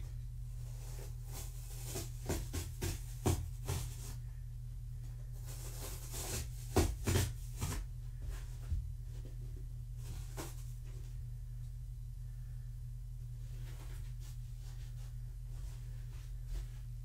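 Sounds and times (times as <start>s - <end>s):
low electrical hum: 0.0s - 17.0s
scratchy rustles and taps: 1.3s - 4.2s.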